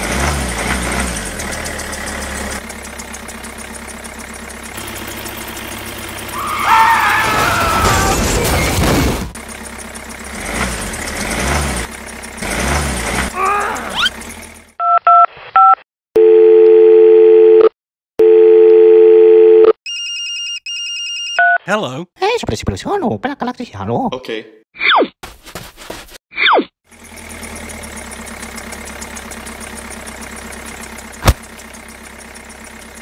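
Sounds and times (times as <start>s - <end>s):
engine running: 0.0s - 14.8s, 26.9s - 33.0s
short dialing beeps: 14.8s - 21.7s.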